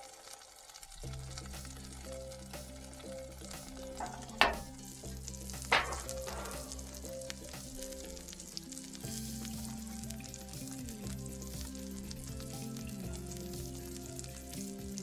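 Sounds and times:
burger patties sizzling: 0:00.0 - 0:15.0
metal pan clanks: 0:04.0 - 0:05.0, 0:05.6 - 0:07.0.

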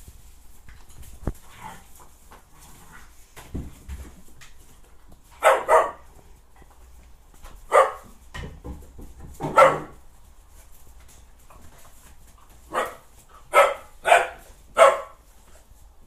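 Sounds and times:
puppies barking: 0:05.4 - 0:06.1, 0:07.7 - 0:08.1, 0:09.4 - 0:10.0, 0:12.7 - 0:15.3.

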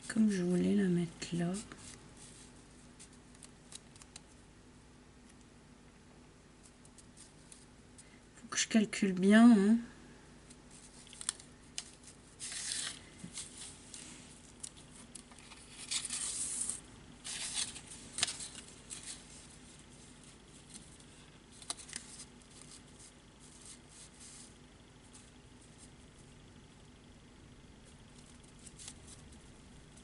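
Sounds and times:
paper rustling and sliding: 0:10.7 - 0:26.0.

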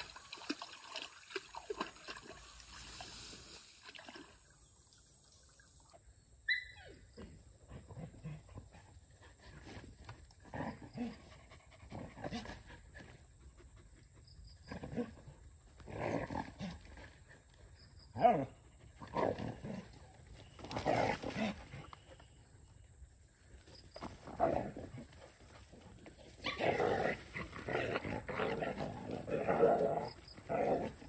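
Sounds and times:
dogs growling: 0:07.2 - 0:13.2, 0:24.2 - 0:31.0.

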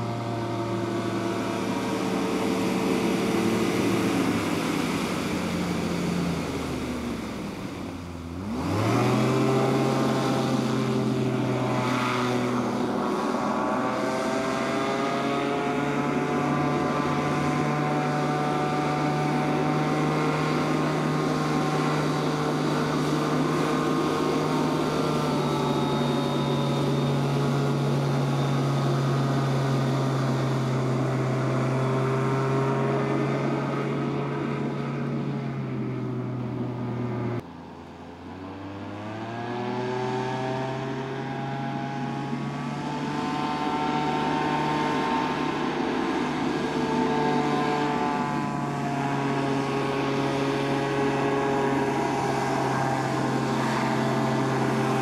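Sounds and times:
hovercraft engine and propeller drone: 0:00.0 - 0:55.0.

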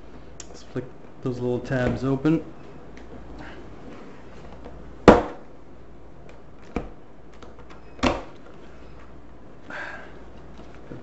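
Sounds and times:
sharp cardboard knocks: 0:05.1 - 0:05.4
faint cardboard rustles and ticks: 0:08.3 - 0:11.0.

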